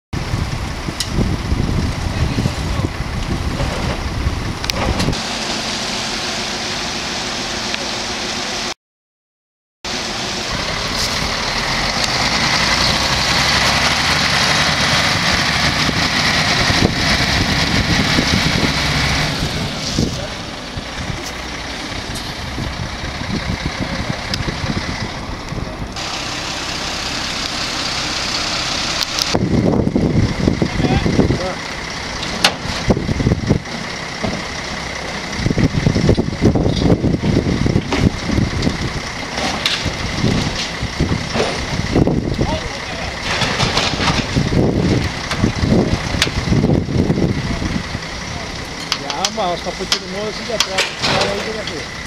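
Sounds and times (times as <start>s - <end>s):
wind buffeting microphone: 0.2s - 5.2s, 10.5s - 26.0s, 29.2s - 48.8s
diesel truck driving past: 9.9s - 52.0s.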